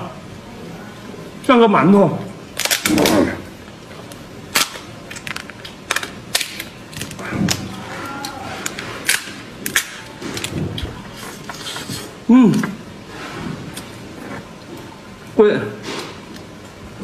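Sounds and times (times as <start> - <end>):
lobster shell cracking: 2.6 - 3.2, 4.1 - 10.6.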